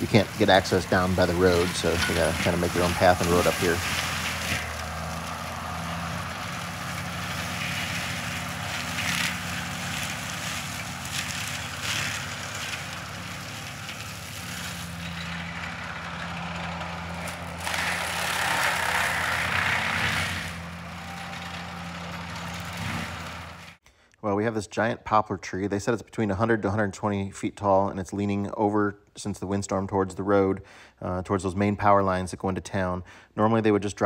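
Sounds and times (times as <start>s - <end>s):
diesel engine running under load: 0.0s - 23.8s
mulcher grinding through brush: 0.0s - 23.8s.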